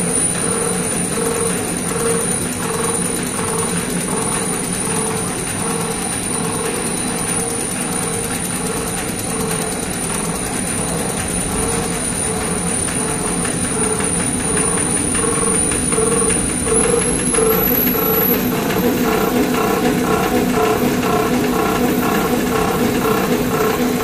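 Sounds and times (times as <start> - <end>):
machine rollers clattering: 0.0 - 24.0
high drive whine: 13.0 - 24.0.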